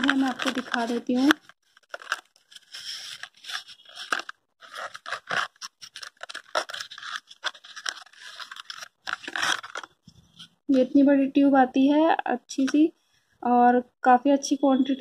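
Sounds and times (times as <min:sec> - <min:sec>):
cardboard carton scraping and crinkling: 0:00.0 - 0:09.9.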